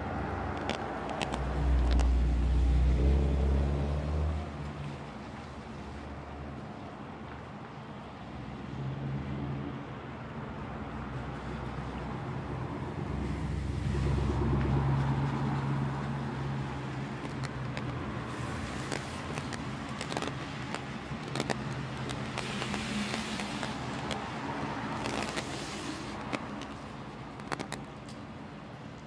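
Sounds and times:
vehicle engine rumble: 0:00.0 - 0:07.4, 0:10.5 - 0:29.0
rain hissing on wet pavement: 0:13.1 - 0:27.8
raindrops ticking: 0:15.9 - 0:28.2.

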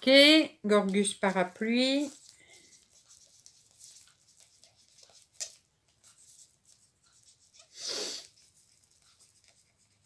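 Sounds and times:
pen scratching on paper: 0:02.0 - 0:10.0.

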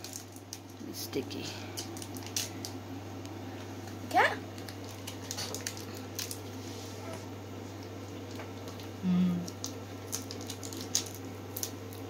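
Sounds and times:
plastic wrapper crackling: 0:00.0 - 0:00.8, 0:01.8 - 0:02.8, 0:04.5 - 0:06.6, 0:09.5 - 0:12.0.

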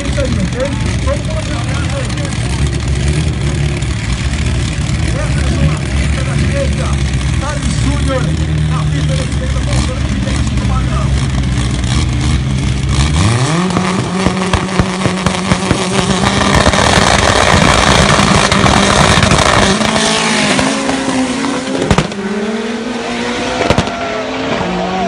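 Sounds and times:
sharp exhaust cracks: 0:00.0 - 0:22.3
drag car engine revving: 0:00.0 - 0:25.0
engine crackling: 0:00.0 - 0:25.0.

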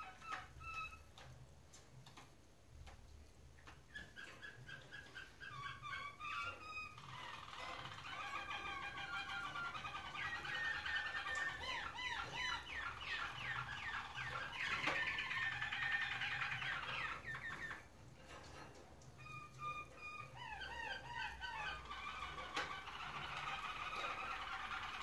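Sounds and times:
canary singing trills: 0:00.0 - 0:01.2, 0:03.6 - 0:18.0, 0:19.2 - 0:25.0.

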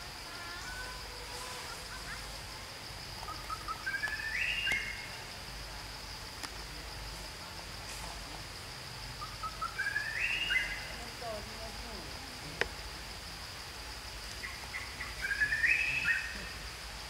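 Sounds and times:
high-pitched insect drone: 0:00.0 - 0:17.0
bird singing: 0:03.2 - 0:05.3, 0:09.1 - 0:11.6, 0:14.4 - 0:16.7.

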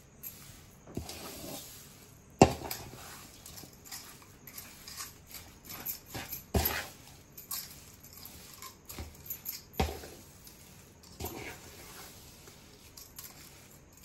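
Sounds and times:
spatula scraping metal pan: 0:09.8 - 0:12.9.

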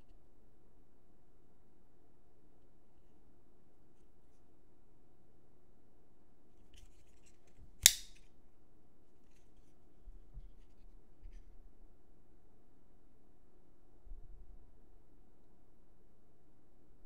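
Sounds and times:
rustle of handling: 0:06.6 - 0:08.3, 0:09.1 - 0:11.6
knife blade locking click: 0:07.8 - 0:08.2.

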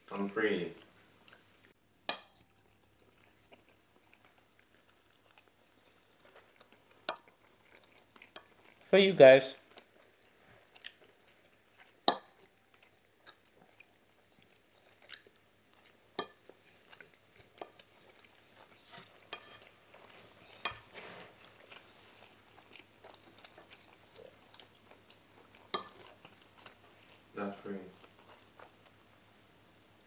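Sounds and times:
soft chewing: 0:00.8 - 0:30.0
wooden spoons scraping a plate: 0:18.7 - 0:21.4.

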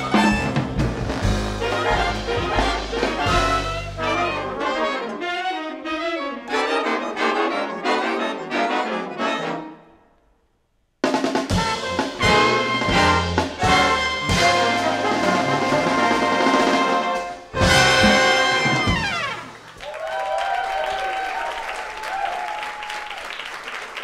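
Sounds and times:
big band playing jazz: 0:00.0 - 0:09.8, 0:11.0 - 0:19.8.

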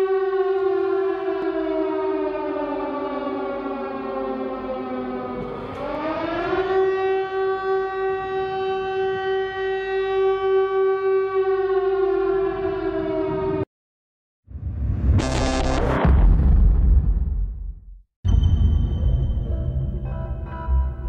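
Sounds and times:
air-raid siren wailing: 0:00.0 - 0:13.7.

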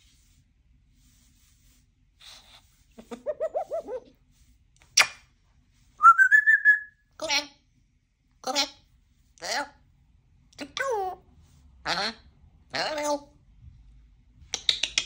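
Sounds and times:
parrot rising whistle: 0:06.0 - 0:07.0
parrot click: 0:14.5 - 0:15.0.

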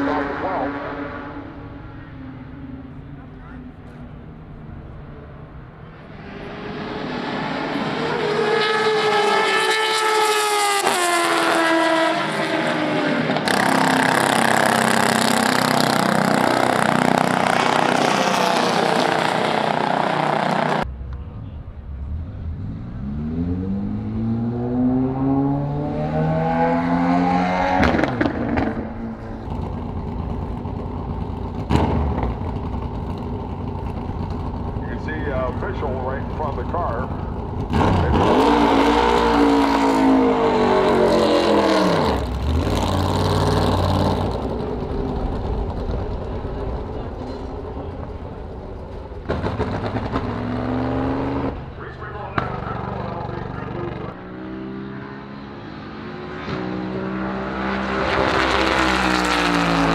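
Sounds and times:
racing car engines revving: 0:00.0 - 0:59.9.

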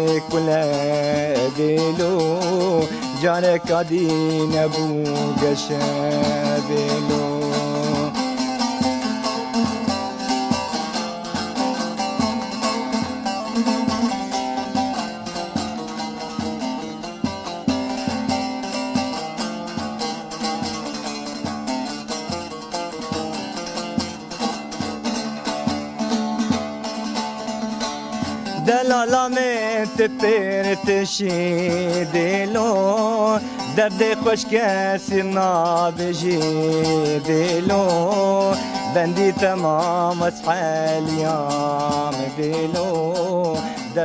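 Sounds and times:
plucked string melody: 0:00.0 - 0:44.0
steady beat: 0:03.6 - 0:39.8.

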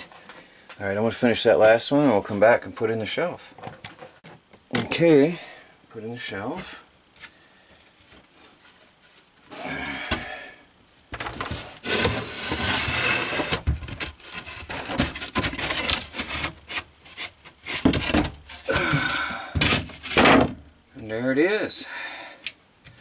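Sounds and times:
board scraping against wooden shelf: 0:11.2 - 0:18.7, 0:19.6 - 0:20.6.

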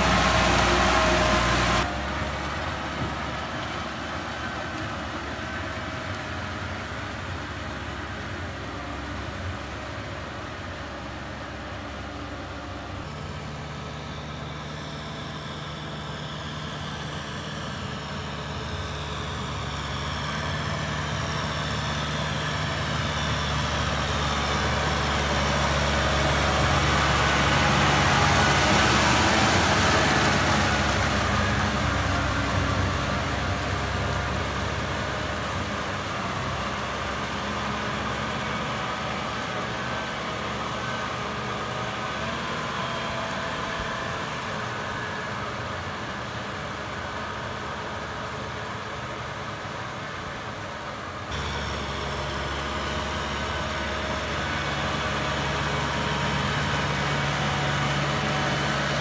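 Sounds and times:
tractor diesel engine running: 0:00.0 - 0:59.0
water and mud churning: 0:20.5 - 0:39.3.

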